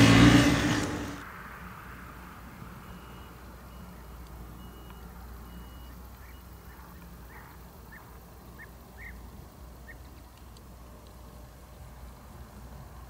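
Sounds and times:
distant reversing alarm beeping: 2.6s - 9.1s
short chirping bird calls: 2.9s - 10.2s.

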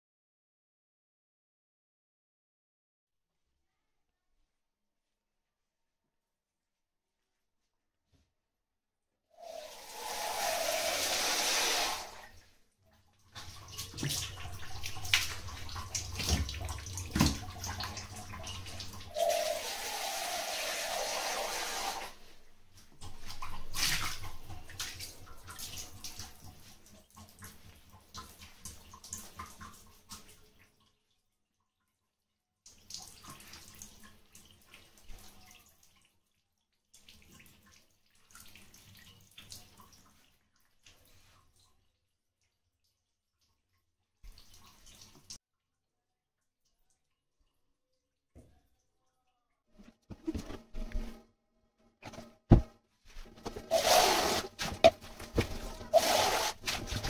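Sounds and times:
tap water running into sink: 9.5s - 12.3s, 13.4s - 22.2s
knocks of things being handled: 52.0s - 53.7s.

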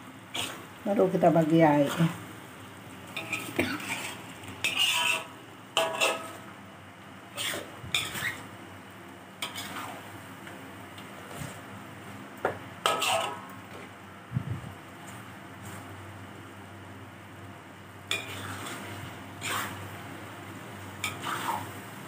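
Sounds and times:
light sizzle: 0.0s - 22.0s
spatula scraping metal wok: 0.3s - 0.6s, 3.1s - 6.5s, 7.3s - 8.5s, 9.4s - 10.1s, 12.8s - 13.9s, 18.1s - 20.0s, 21.0s - 21.8s.

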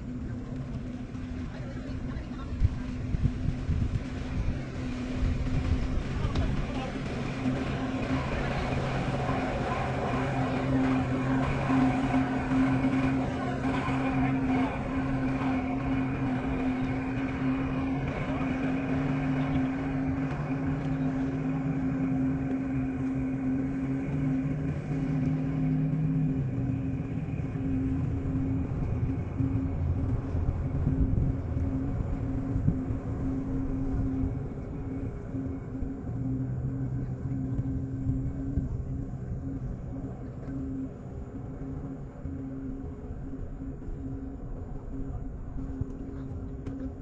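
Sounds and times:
engine running at low revs: 0.0s - 47.0s.

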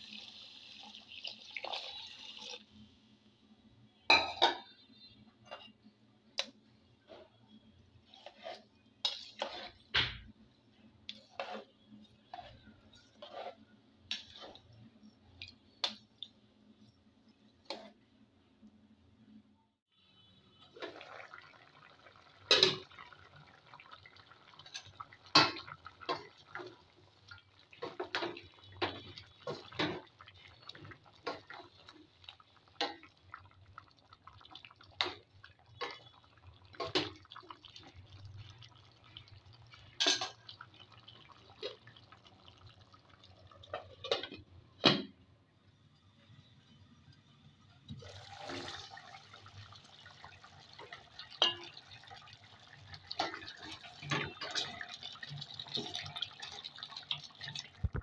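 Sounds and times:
utensil scraping metal pot: 7.1s - 9.9s, 11.1s - 14.8s.

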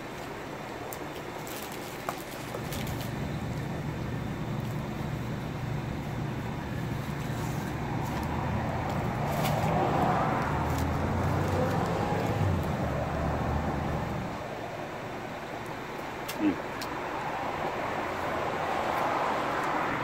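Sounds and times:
road traffic rumble: 0.0s - 20.0s
vehicle passing: 2.6s - 14.7s, 17.0s - 20.0s.

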